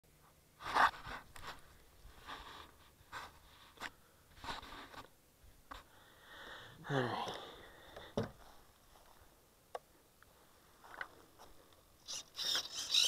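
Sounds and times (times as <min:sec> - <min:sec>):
rustling and scraping handling noise: 0:00.2 - 0:05.9.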